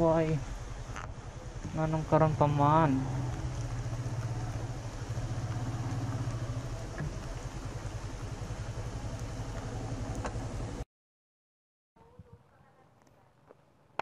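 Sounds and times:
motorcycle engine at low revs: 0:00.0 - 0:10.8.

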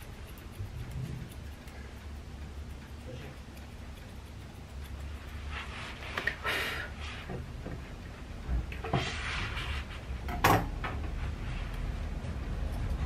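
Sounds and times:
scissors snipping: 0:00.0 - 0:05.5
low steady hum: 0:00.0 - 0:13.0.

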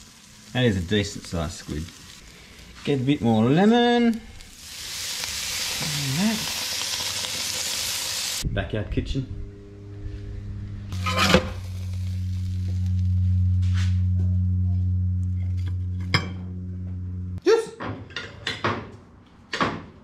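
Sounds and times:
steady low hum: 0:08.4 - 0:17.4.

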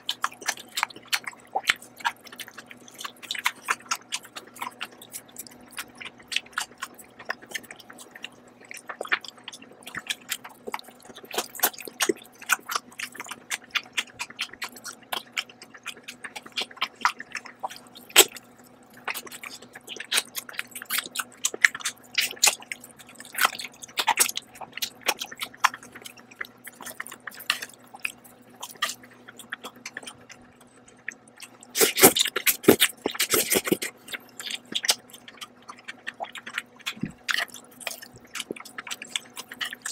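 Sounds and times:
wet chewing mouth smacks: 0:00.0 - 0:39.9
noodles being slurped: 0:31.1 - 0:39.9.

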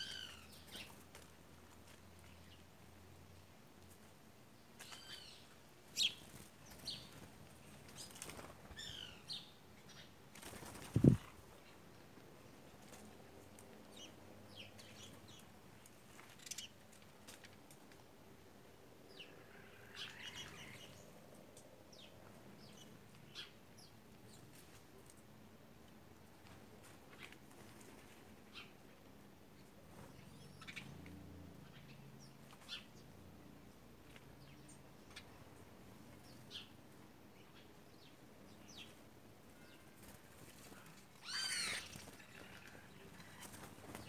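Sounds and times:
wing flutter: 0:06.1 - 0:09.1, 0:10.3 - 0:11.5, 0:39.9 - 0:44.0
birds chirping: 0:37.4 - 0:44.0.

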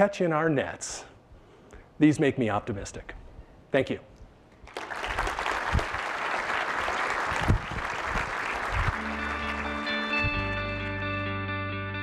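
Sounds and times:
audience applause: 0:04.7 - 0:10.6
music with long held notes: 0:08.8 - 0:12.0.

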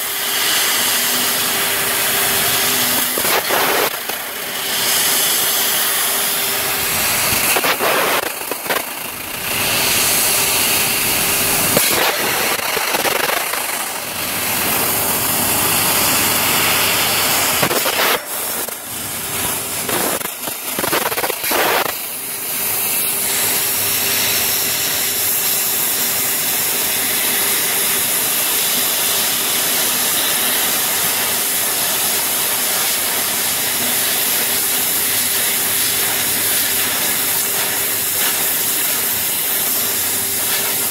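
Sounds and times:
machine hum: 0:00.0 - 0:20.9
laser cutter gas hiss: 0:00.0 - 0:40.9.

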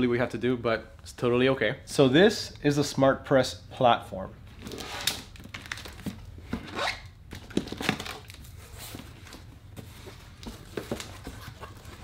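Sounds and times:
cardboard flaps rustling and scraping: 0:04.6 - 0:12.0.

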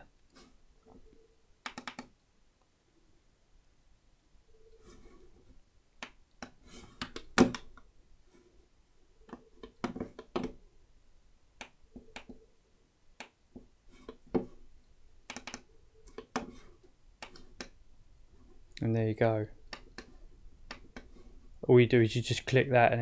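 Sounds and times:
computer mouse clicking: 0:01.6 - 0:02.2, 0:15.2 - 0:16.6, 0:19.6 - 0:21.1.

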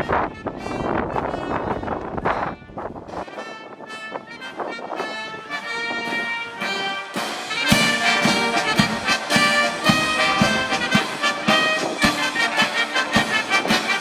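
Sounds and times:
military brass band playing: 0:00.0 - 0:14.0
steady drum beat: 0:06.6 - 0:14.0.

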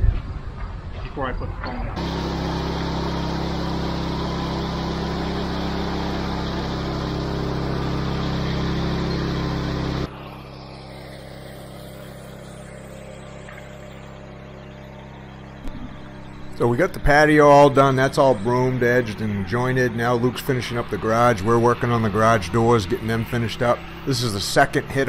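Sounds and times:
engine running: 0:01.9 - 0:25.0.

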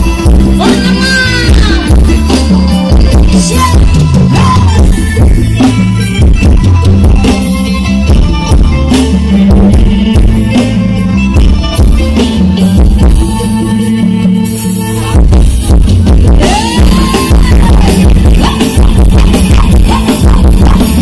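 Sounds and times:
person singing: 0:00.0 - 0:05.3, 0:16.2 - 0:21.0
loud bass-heavy music with drums: 0:00.0 - 0:21.0.

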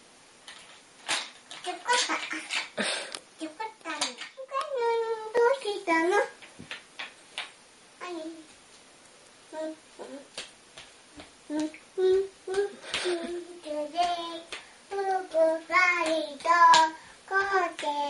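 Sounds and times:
toddler girl singing: 0:09.5 - 0:10.3, 0:11.5 - 0:18.0.

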